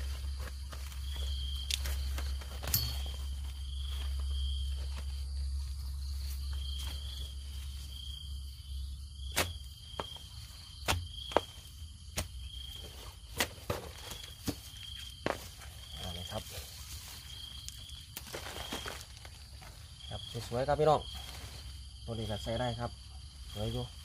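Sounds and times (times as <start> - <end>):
digging tool knocking soil: 0.0 - 3.6, 9.2 - 16.0
high insect chirp: 0.0 - 24.0.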